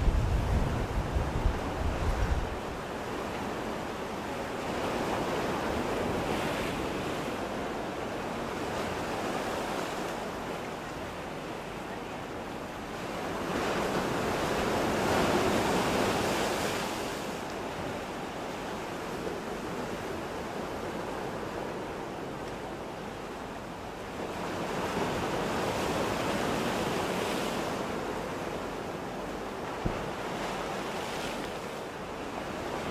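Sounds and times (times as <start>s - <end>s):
sea waves breaking on shore: 24.1s - 32.9s.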